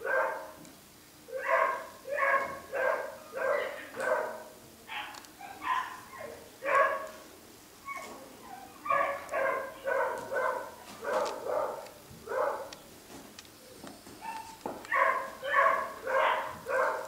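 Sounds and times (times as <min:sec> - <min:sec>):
puppy yapping: 0:01.3 - 0:07.1, 0:07.9 - 0:12.7, 0:14.2 - 0:17.0.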